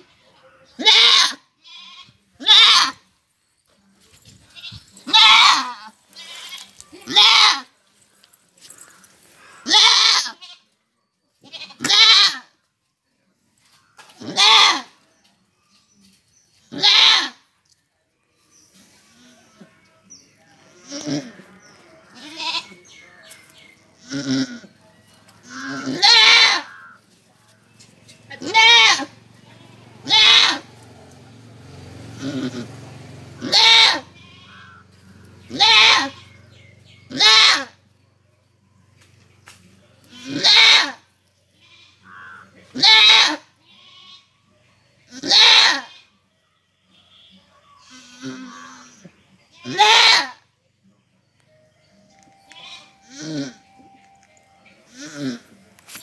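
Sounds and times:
goat bleating: 0:00.8 - 0:03.0, 0:04.4 - 0:07.7, 0:09.4 - 0:10.8, 0:11.4 - 0:12.5, 0:14.2 - 0:15.0, 0:16.7 - 0:17.4, 0:20.8 - 0:21.5, 0:22.1 - 0:22.9, 0:24.0 - 0:24.7, 0:25.4 - 0:27.0, 0:28.3 - 0:30.8, 0:32.2 - 0:32.8, 0:33.4 - 0:36.4, 0:37.1 - 0:37.8, 0:40.0 - 0:44.4, 0:45.1 - 0:46.2, 0:47.2 - 0:50.4, 0:52.5 - 0:53.6, 0:54.9 - 0:55.6.

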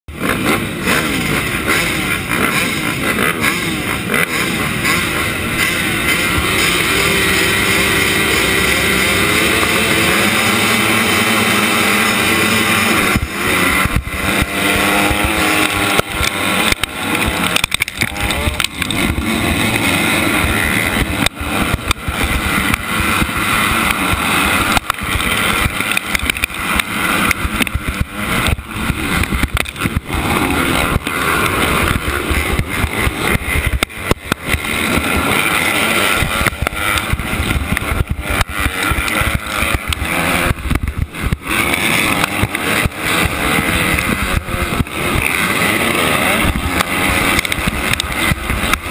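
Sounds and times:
dirt bike engine revving: 0:00.1 - 0:48.9
surrounding motorbike engines: 0:00.1 - 0:48.9.

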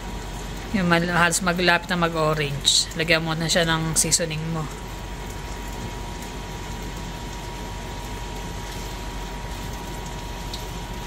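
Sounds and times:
shrimp sizzling in a pan: 0:08.0 - 0:11.0.

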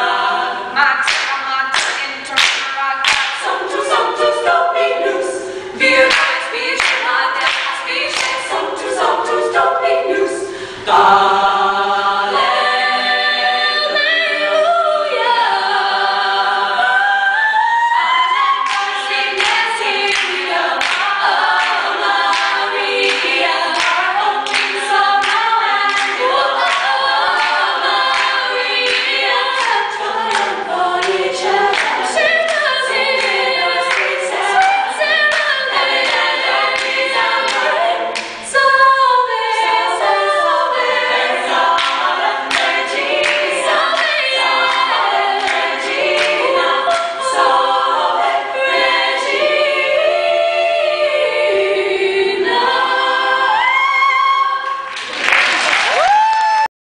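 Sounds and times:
women's choir singing a cappella: 0:00.0 - 0:55.2
hand claps: 0:01.0 - 0:03.5, 0:06.1 - 0:08.5, 0:18.7 - 0:32.6, 0:33.2 - 0:38.4, 0:41.8 - 0:47.1, 0:54.9 - 0:56.7.

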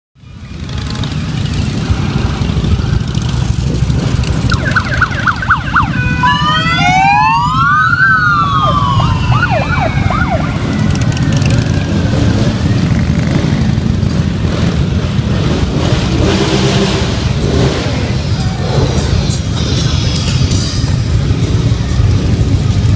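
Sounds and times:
motorcycles rumbling past: 0:00.4 - 0:22.9
police siren yelping and wailing: 0:04.3 - 0:12.3.

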